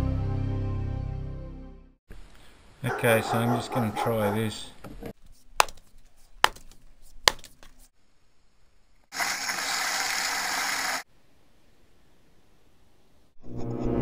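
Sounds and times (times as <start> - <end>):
steady hissing noise: 2.1 - 3.2
axe chopping firewood: 5.6 - 7.8.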